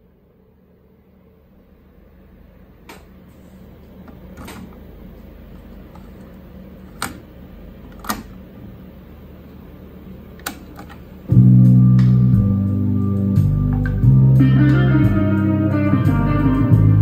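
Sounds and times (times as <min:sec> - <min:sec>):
low steady hum: 0:00.0 - 0:17.0
plastic cassette door clicks: 0:06.9 - 0:07.2, 0:07.9 - 0:08.3.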